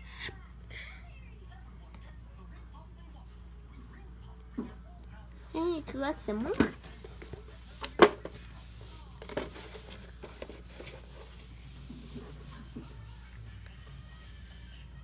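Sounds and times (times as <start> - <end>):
scratching and rustling: 5.4 - 14.7.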